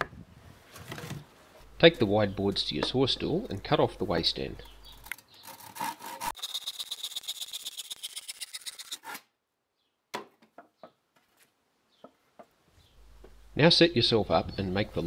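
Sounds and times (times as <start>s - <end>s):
hand saw cutting wood: 5.0s - 9.2s.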